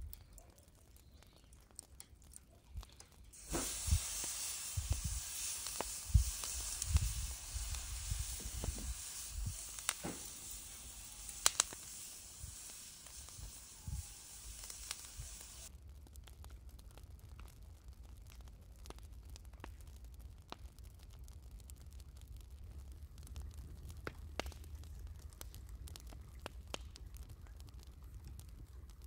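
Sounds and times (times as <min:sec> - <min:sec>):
meat sizzling on grill: 0:03.3 - 0:15.7
sharp pops: 0:03.4 - 0:15.7.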